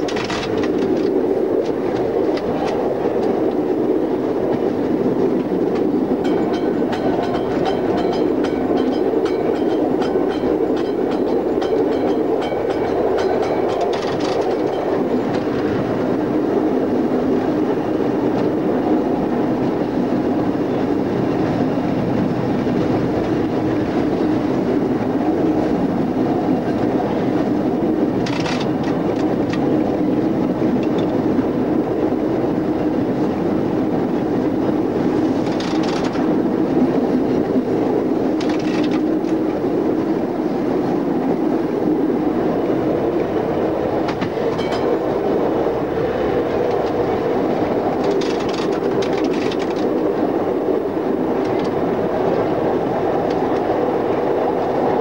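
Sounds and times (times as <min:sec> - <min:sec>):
clicks over rail joints: 0:00.0 - 0:03.6, 0:05.4 - 0:15.7, 0:28.2 - 0:29.7, 0:35.4 - 0:36.3, 0:38.4 - 0:39.5, 0:44.0 - 0:44.9, 0:47.9 - 0:50.0
tram wheels rumbling on rail: 0:00.0 - 0:55.0.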